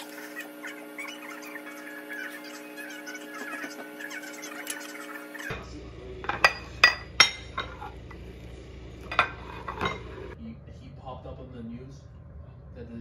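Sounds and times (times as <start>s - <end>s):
utensils clinking against dishes: 6.2s - 8.0s, 9.0s - 10.4s.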